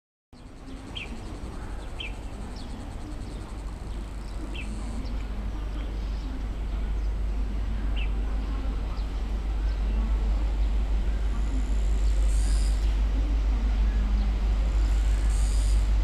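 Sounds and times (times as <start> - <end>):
birds chirping: 0.4 - 13.0.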